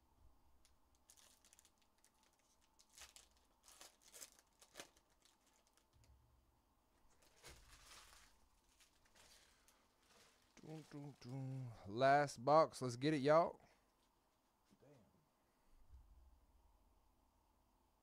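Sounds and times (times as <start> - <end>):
foil wrapper tearing and crinkling: 0.9 - 6.0, 7.1 - 11.0.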